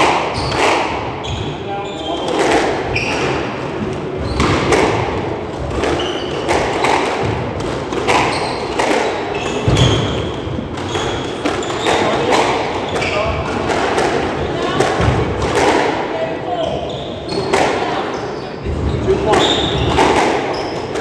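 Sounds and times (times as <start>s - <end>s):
squash ball hits echoing: 0.0s - 21.0s
shoes squeaking on wooden floor: 0.3s - 4.7s, 5.8s - 6.9s, 8.1s - 13.5s, 16.6s - 21.0s.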